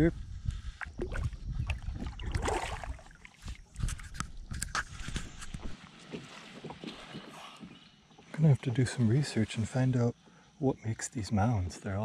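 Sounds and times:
clicks and knocks in kayak: 0:03.4 - 0:08.4.

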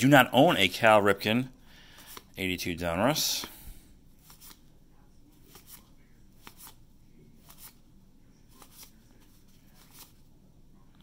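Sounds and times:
cardboard cards swishing: 0:01.9 - 0:02.4, 0:04.2 - 0:04.7, 0:05.4 - 0:06.8, 0:07.4 - 0:07.8, 0:08.4 - 0:10.2.

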